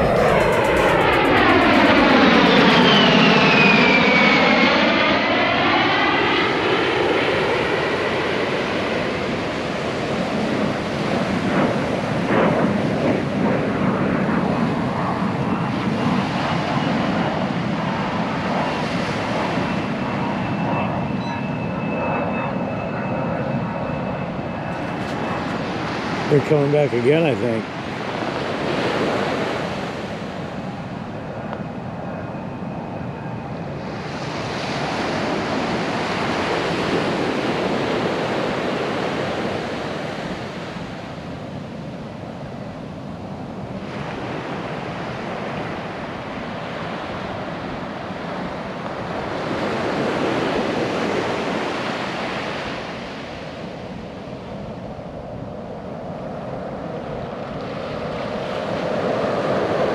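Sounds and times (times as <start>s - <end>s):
wind buffeting microphone: 0.0s - 3.1s.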